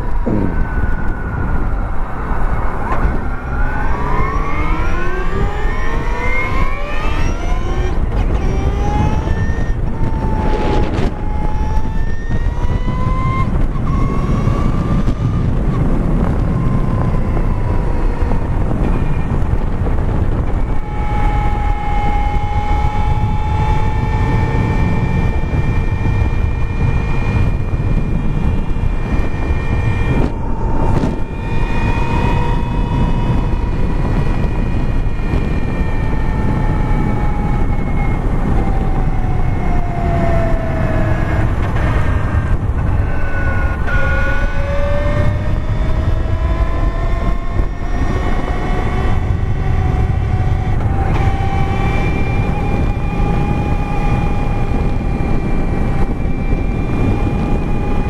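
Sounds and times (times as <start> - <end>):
electric motorcycle motor whining: 0.0 - 58.0
wind rumble on microphone: 0.0 - 58.0.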